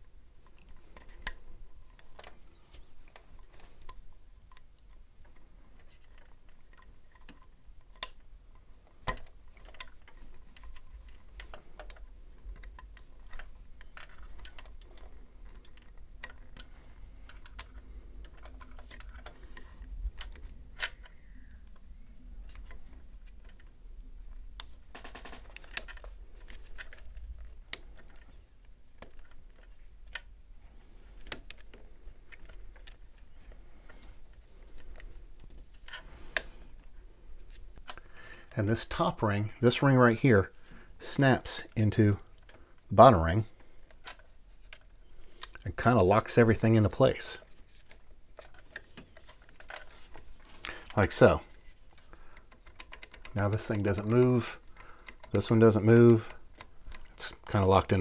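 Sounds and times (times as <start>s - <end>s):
small plastic clicks: 0.4s - 38.2s, 46.9s - 58.0s.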